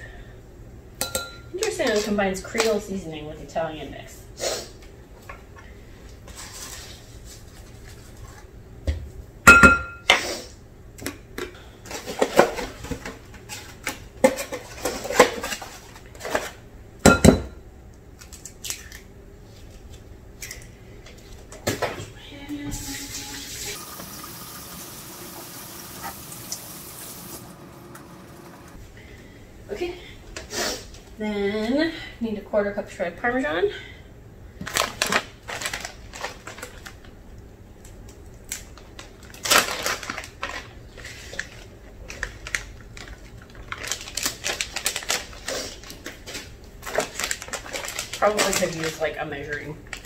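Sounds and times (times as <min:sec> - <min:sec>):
kitchen tap running into sink: 0:22.7 - 0:28.7.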